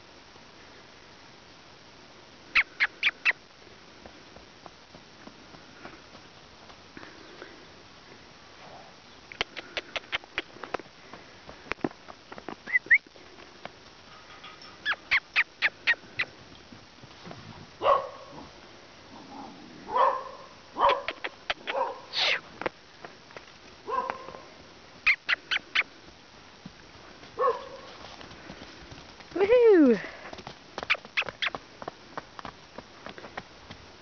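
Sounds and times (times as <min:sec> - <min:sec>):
dog barking: 0:17.8 - 0:18.4, 0:19.9 - 0:22.2, 0:23.9 - 0:24.5, 0:27.4 - 0:27.9.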